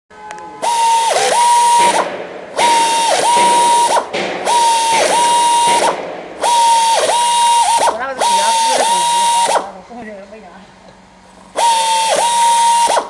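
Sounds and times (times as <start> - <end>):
pneumatic air motor whining: 0.6 - 9.8, 11.4 - 13.0.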